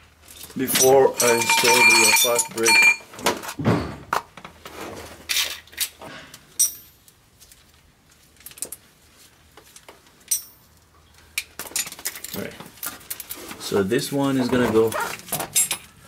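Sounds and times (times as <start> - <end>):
metal parts clinking and rattling: 0.2 - 3.0, 10.2 - 10.7, 11.6 - 13.4, 15.1 - 16.0.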